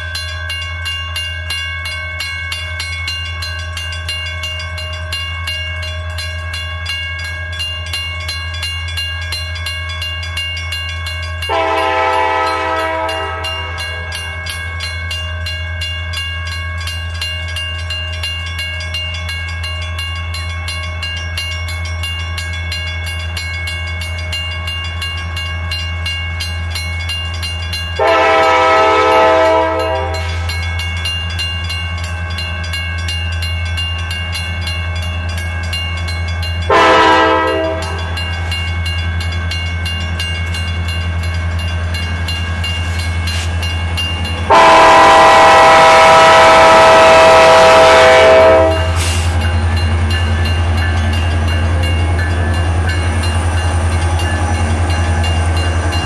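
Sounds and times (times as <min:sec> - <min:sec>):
crossing bell ringing: 0:00.0 - 0:56.0
locomotive horn blasts: 0:11.5 - 0:14.1, 0:28.0 - 0:30.4, 0:36.7 - 0:38.2, 0:44.4 - 0:49.2.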